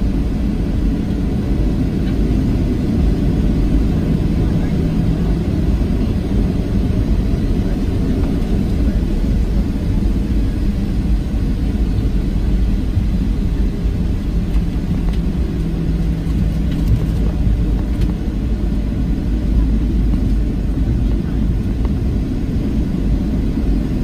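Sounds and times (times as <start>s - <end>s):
airplane engines rumbling in cabin: 0.0s - 24.0s.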